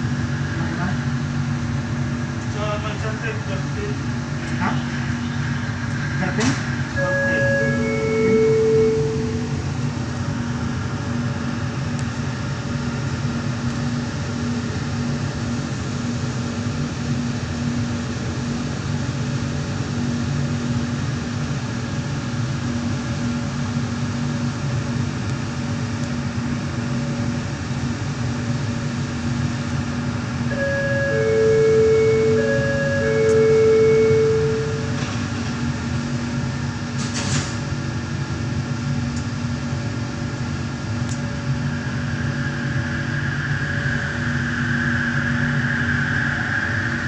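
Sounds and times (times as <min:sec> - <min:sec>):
train car hum and rumble: 0:00.0 - 0:47.0
low tone: 0:06.9 - 0:10.5, 0:30.5 - 0:35.4.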